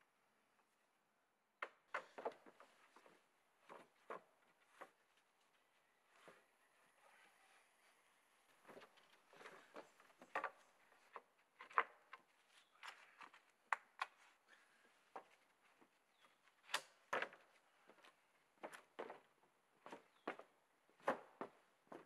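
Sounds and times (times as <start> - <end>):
wooden poles knocking together: 1.6 - 4.9, 8.7 - 12.3.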